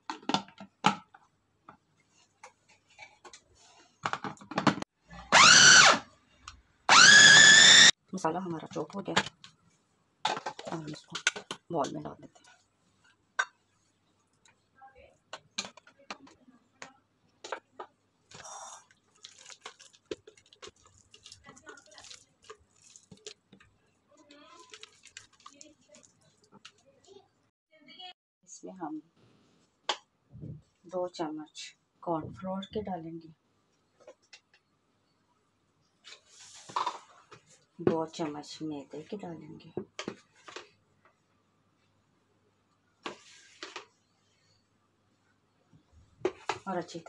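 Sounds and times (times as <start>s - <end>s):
plastic parts clicking and knocking: 0.0s - 1.8s, 4.0s - 4.8s, 10.2s - 12.0s, 15.3s - 18.4s
food chopper motor whirring: 5.3s - 6.0s, 6.9s - 7.9s.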